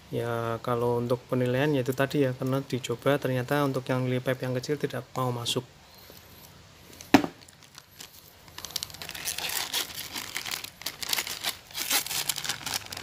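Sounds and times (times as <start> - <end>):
plastic packaging crinkling: 6.9 - 13.0.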